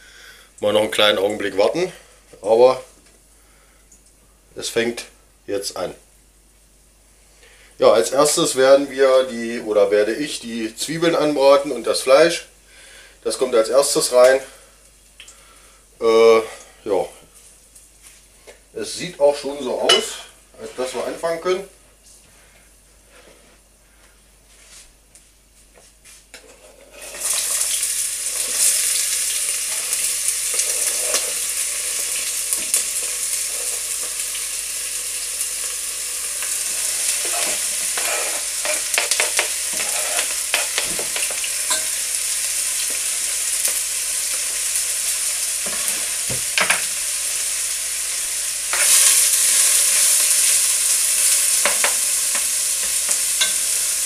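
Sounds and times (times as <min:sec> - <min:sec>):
onions sizzling in hot oil: 0:26.7 - 0:54.0
spatula scraping and tapping pot: 0:37.2 - 0:41.9, 0:51.6 - 0:53.7.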